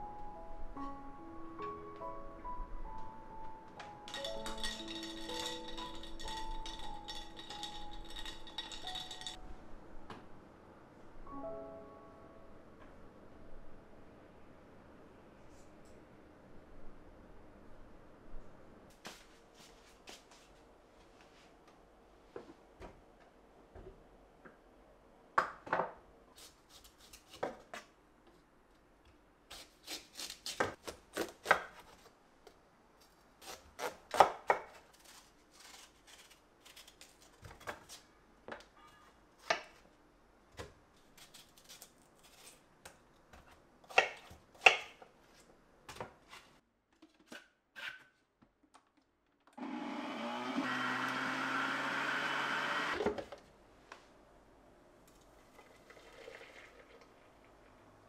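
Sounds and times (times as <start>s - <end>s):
countertop blender running: 49.6s - 53.1s.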